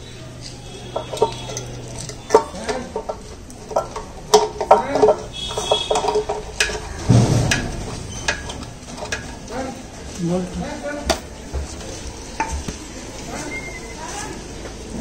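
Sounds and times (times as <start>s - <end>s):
rustling noise: 5.2s - 15.0s.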